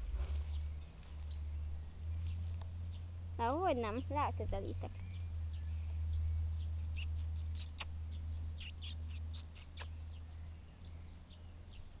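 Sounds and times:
low steady rumble: 0:00.0 - 0:12.0
small bird chirping: 0:03.7 - 0:12.0.

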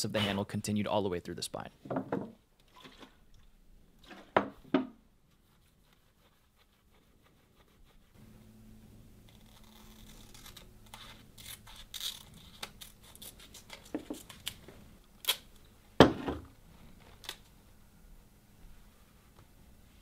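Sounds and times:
stencil crinkling: 0:09.2 - 0:15.6.

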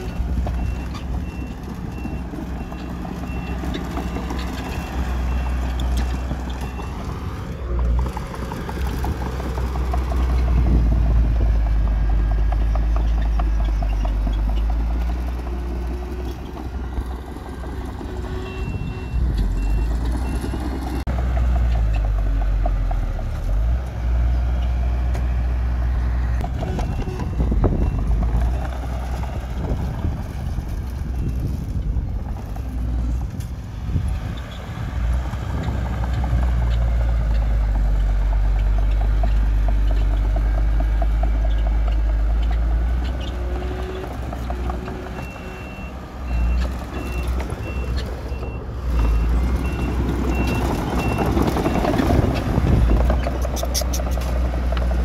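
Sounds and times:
heavy diesel machinery rumble: 0:00.0 - 0:55.0
reversing alarm beeps: 0:18.4 - 0:20.7.

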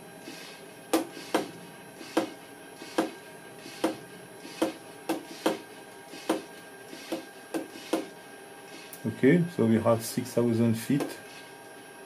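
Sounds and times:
hand vacuum pump strokes: 0:01.2 - 0:08.1.

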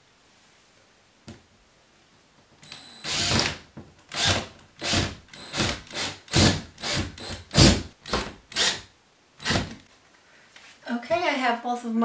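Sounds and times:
cordless drill motor: 0:03.0 - 0:03.5, 0:04.1 - 0:07.8, 0:08.5 - 0:08.8, 0:09.4 - 0:09.7.

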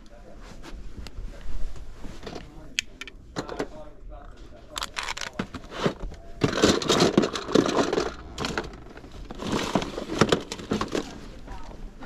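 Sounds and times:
plastic toys clattering: 0:04.7 - 0:11.4.

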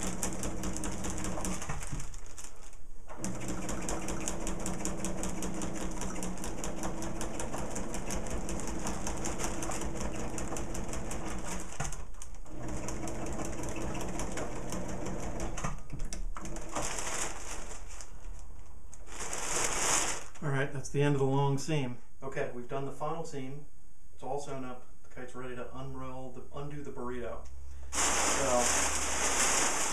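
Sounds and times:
sewing machine stitching: 0:00.0 - 0:02.0, 0:03.1 - 0:15.7.

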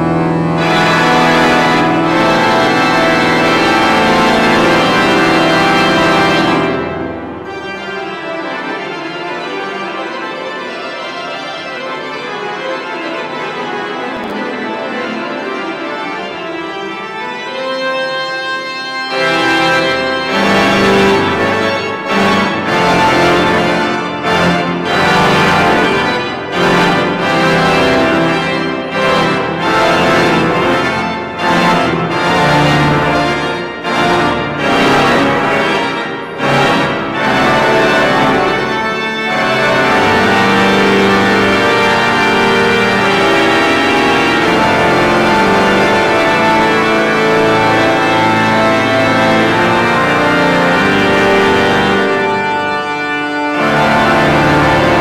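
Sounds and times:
deep organ bass notes: 0:00.0 - 0:07.8, 0:19.1 - 0:55.0
church pipe organ chords: 0:00.0 - 0:55.0.

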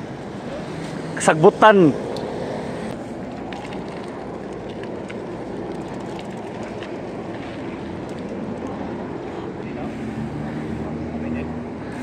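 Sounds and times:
bicycle rolling over dirt path: 0:03.0 - 0:08.6.

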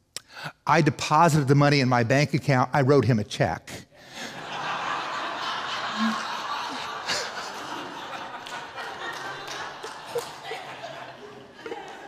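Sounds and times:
congregation laughing: 0:04.0 - 0:12.0.

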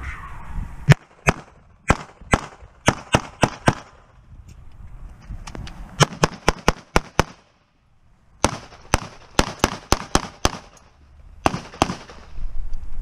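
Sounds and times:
rapid pistol shots: 0:00.9 - 0:04.0, 0:06.0 - 0:07.5, 0:08.4 - 0:10.8, 0:11.4 - 0:12.3.

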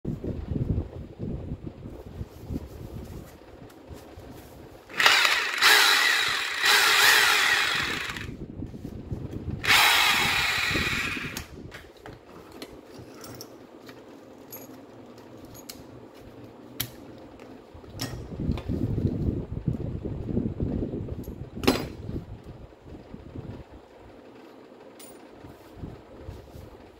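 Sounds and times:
handling and rustling: 0:01.9 - 0:05.3
rotary hammer motor running: 0:04.9 - 0:08.4, 0:09.6 - 0:11.6.

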